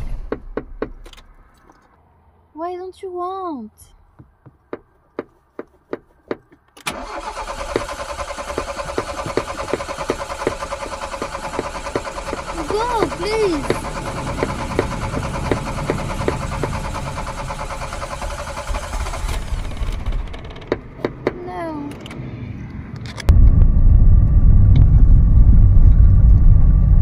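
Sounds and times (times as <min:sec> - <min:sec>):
car engine labouring on cold start: 0:06.8 - 0:21.2
car driving rumble from inside: 0:23.3 - 0:27.0.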